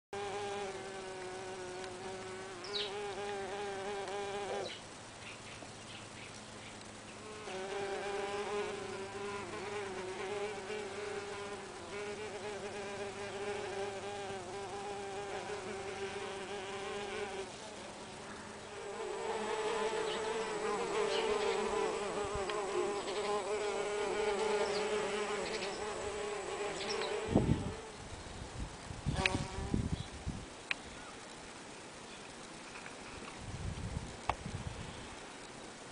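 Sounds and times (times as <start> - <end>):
bees buzzing in flight: 0.2 - 4.8, 6.9 - 28.1.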